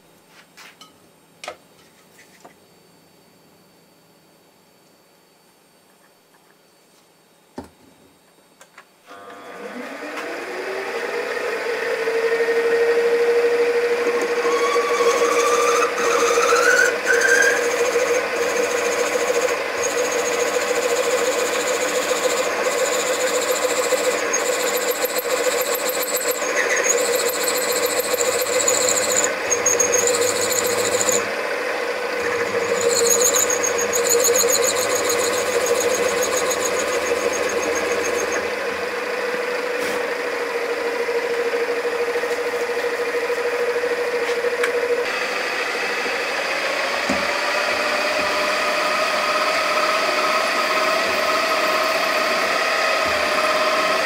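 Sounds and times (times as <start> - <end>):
spindle motor humming: 9.1 - 39.6
bit squealing cutting metal: 14.2 - 31.3, 32.2 - 38.5.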